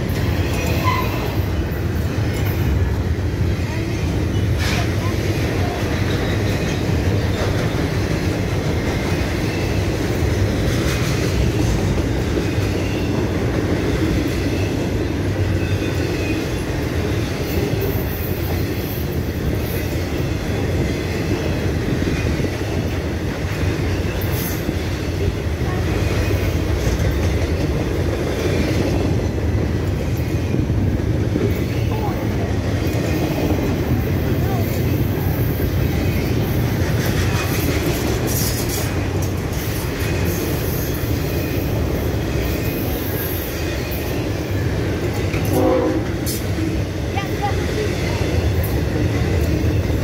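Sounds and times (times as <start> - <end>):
train wheels rumbling on rails: 0.0 - 50.0.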